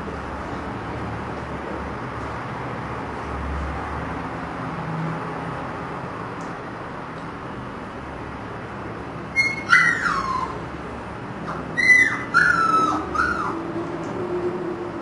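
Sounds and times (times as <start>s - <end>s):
puppy whining: 9.4s - 10.7s, 11.5s - 13.6s.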